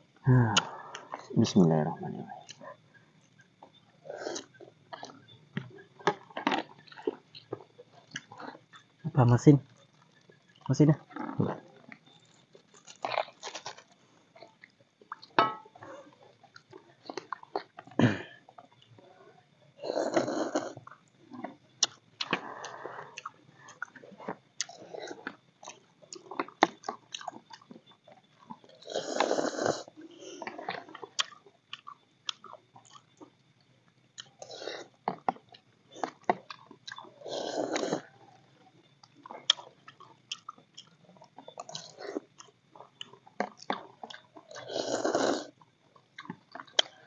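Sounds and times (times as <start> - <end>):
chewing: 2.3 - 9.0, 9.7 - 19.1, 19.9 - 47.0.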